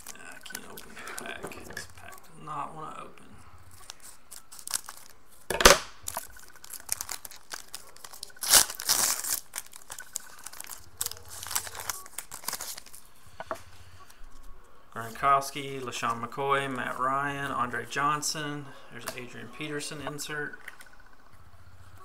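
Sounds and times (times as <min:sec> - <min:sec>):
foil wrapper crinkling: 0:00.0 - 0:02.0, 0:03.7 - 0:13.4
sharp crackle: 0:03.7 - 0:14.2
scissors cutting foil: 0:06.1 - 0:13.0.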